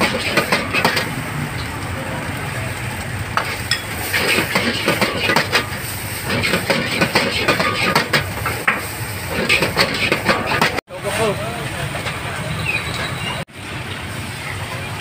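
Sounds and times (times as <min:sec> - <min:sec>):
clicks and clatters: 0:00.0 - 0:01.8, 0:03.3 - 0:05.7.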